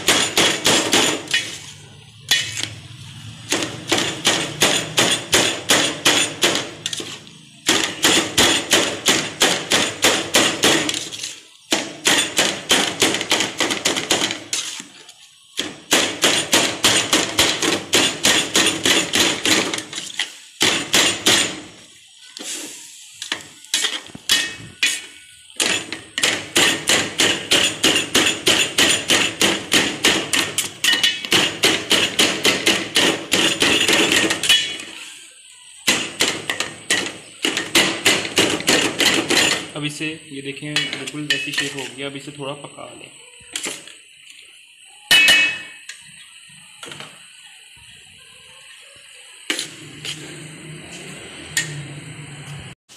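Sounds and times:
knife chopping in a metal bowl: 2.3 - 2.8, 23.7 - 34.8.

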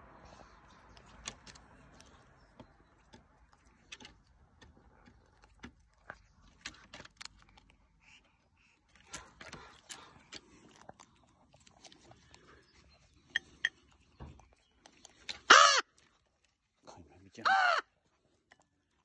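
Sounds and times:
bird pecking clicks: 0.8 - 2.2.

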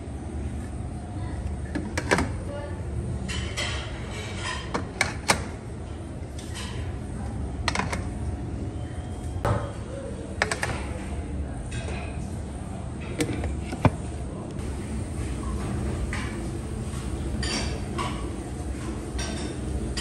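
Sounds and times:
low kitchen hum: 0.0 - 20.0
metal steamer lids clinking: 14.6 - 20.0.

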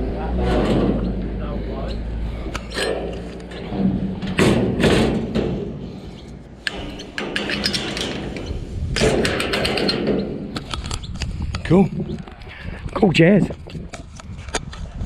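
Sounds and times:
metal gate clanking and rattling: 0.2 - 11.1.

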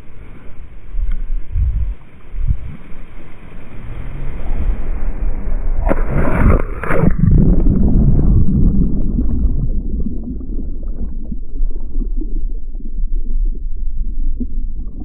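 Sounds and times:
rush of air during fall: 0.0 - 10.6
muffled underwater rumble: 0.0 - 15.0
wind buffeting microphone: 0.9 - 2.9.

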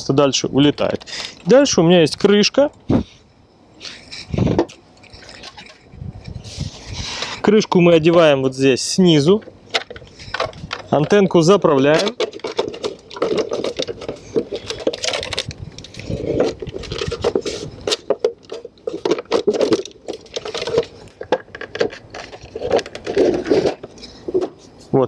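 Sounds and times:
plastic housing clicking and scraping: 9.2 - 24.9.

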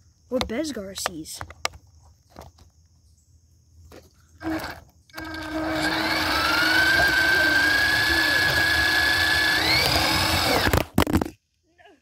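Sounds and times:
toy car electric motor whine: 4.4 - 10.9.

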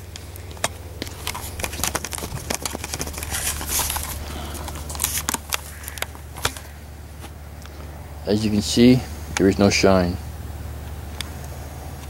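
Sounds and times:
low hum: 0.0 - 12.0
camera handling clicks and rustles: 0.1 - 7.8.

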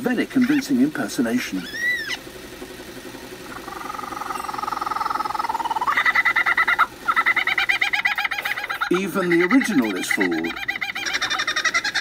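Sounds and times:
lyrebird mimicking kookaburra laugh: 3.5 - 12.0.

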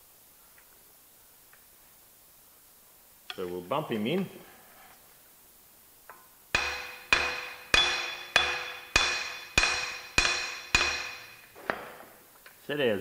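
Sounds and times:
hammer striking metal with ringing: 6.5 - 11.5.

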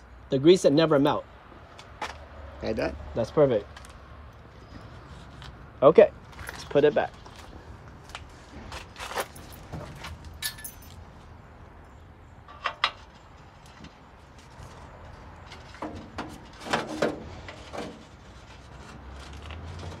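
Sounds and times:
metal clinks and taps: 10.4 - 11.0.

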